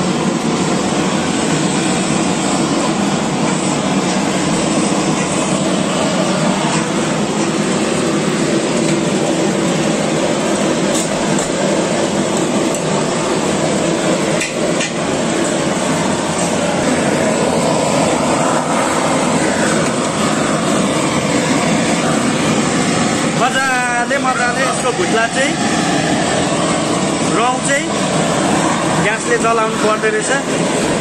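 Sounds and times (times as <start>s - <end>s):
blowtorch hissing: 0.0s - 31.0s.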